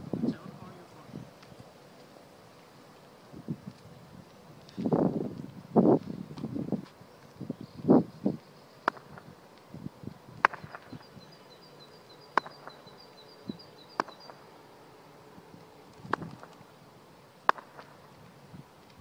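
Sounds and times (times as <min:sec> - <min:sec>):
high chirping call: 0:10.5 - 0:14.6.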